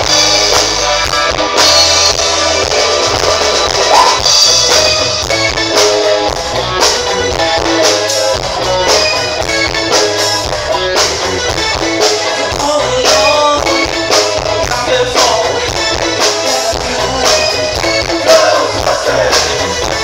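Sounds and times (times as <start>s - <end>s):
live rock band playing: 0.0s - 20.0s
person singing: 12.1s - 20.0s.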